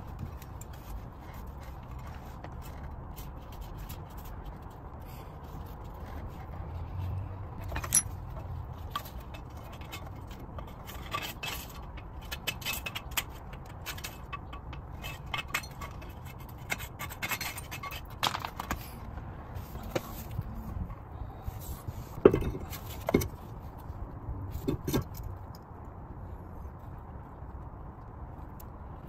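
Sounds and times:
metal tools clinking and scraping: 0:07.6 - 0:18.9.

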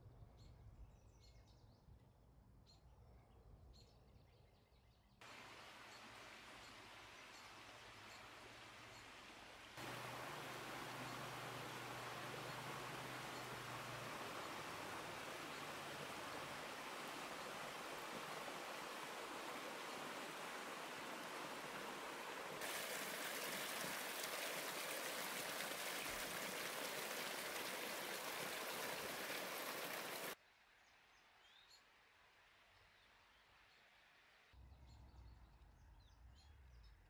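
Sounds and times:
river water rushing over stones: 0:05.2 - 0:30.4
small cascade splashing: 0:05.2 - 0:30.4.

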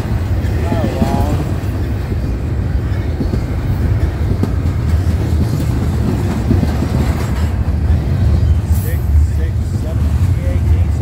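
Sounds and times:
freight train rolling past: 0:00.0 - 0:11.0
clanks and clacks: 0:03.0 - 0:08.9.

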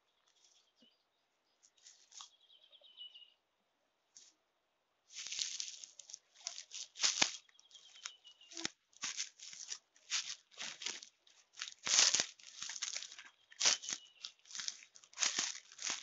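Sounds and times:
dry leaf litter crunching underfoot: 0:05.1 - 0:16.0
fronds brushing past: 0:05.2 - 0:16.0.

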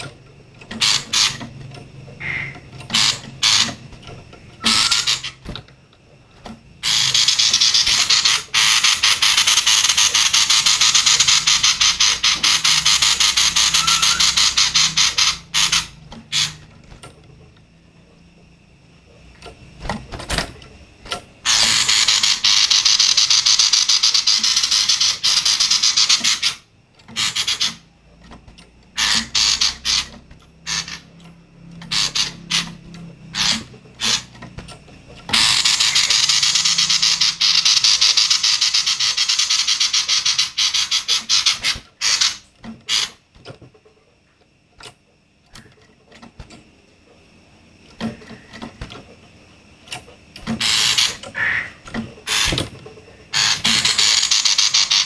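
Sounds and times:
bird rattling chatter: 0:00.6 - 0:05.5, 0:06.8 - 0:16.9, 0:21.1 - 0:27.8, 0:29.0 - 0:31.2, 0:31.8 - 0:34.4, 0:35.3 - 0:43.2, 0:53.3 - 0:55.0.

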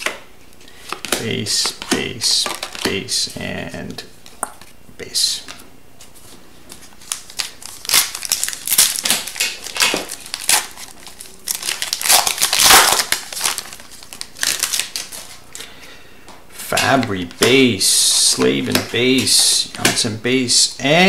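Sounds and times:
foil wrapper tearing and crinkling: 0:07.0 - 0:15.4.

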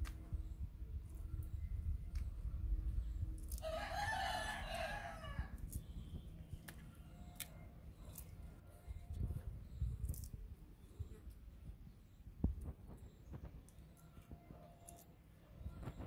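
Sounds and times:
rooster crowing: 0:03.6 - 0:05.5.

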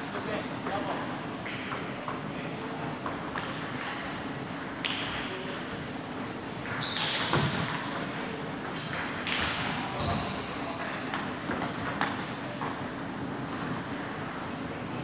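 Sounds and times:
large hall background: 0:00.0 - 0:15.0.

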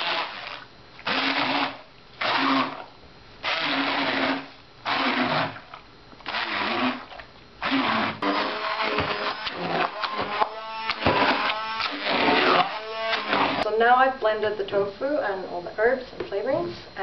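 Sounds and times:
electric blender pulsing: 0:00.0 - 0:02.8, 0:03.4 - 0:05.6, 0:06.2 - 0:13.7.

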